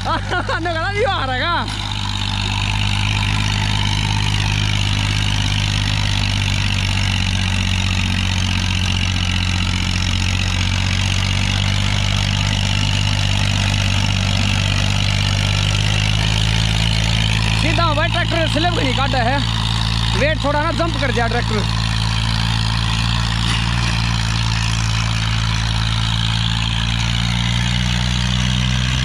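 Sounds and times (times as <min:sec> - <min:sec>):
tractor diesel engine under load: 0:00.0 - 0:29.0.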